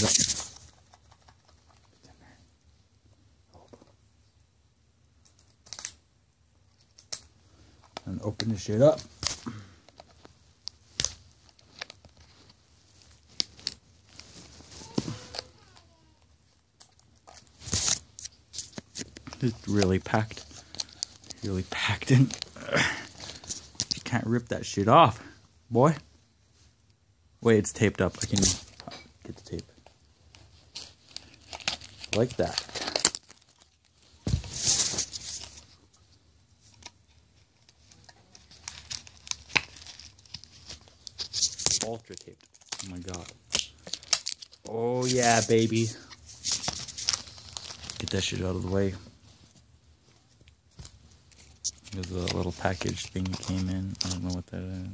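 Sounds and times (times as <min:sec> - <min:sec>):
tape and plastic tearing: 0:00.0 - 0:00.6, 0:05.2 - 0:06.0, 0:13.3 - 0:16.0, 0:16.8 - 0:22.6, 0:30.7 - 0:35.6, 0:37.6 - 0:48.3
package rustling: 0:16.8 - 0:24.1, 0:29.4 - 0:35.8, 0:36.7 - 0:48.7, 0:50.4 - 0:54.5.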